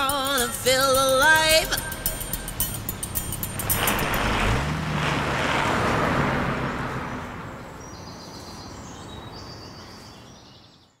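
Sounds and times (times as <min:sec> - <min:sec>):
vehicle passing on road: 0:02.0 - 0:09.8
bird chirps: 0:07.6 - 0:11.0.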